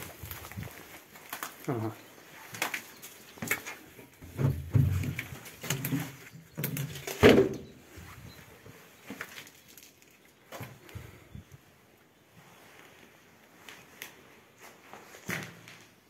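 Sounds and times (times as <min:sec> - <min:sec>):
footsteps on debris: 0:00.0 - 0:11.1.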